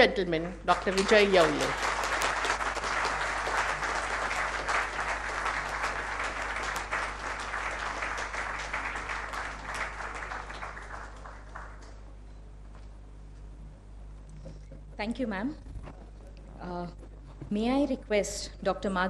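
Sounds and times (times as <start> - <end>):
people applauding: 0.7 - 12.2.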